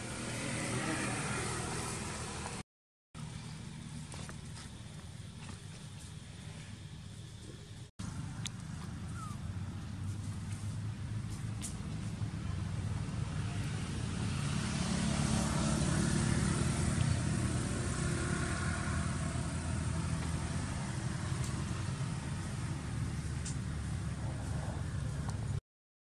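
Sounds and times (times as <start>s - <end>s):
vehicle engine passing by: 0.0s - 2.6s, 8.0s - 25.6s.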